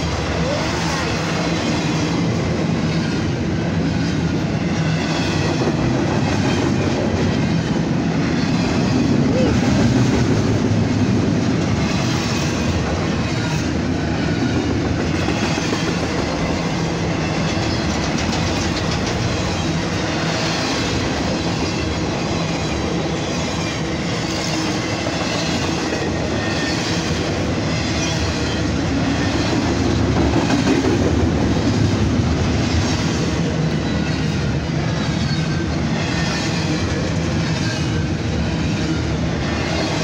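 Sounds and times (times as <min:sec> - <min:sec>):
freight train rumble and rattle: 0:00.0 - 0:40.0
wheels clicking over rail joints: 0:17.3 - 0:19.8.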